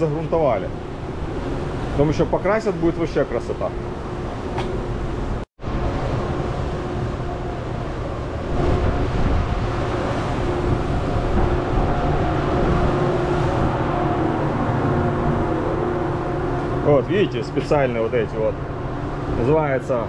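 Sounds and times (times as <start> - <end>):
even rushing noise: 0.0 - 20.0
machinery hum: 0.0 - 20.0.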